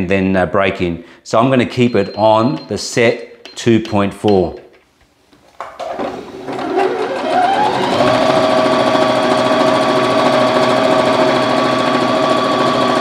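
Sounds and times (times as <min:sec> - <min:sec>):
sewing machine running: 0:06.4 - 0:13.0.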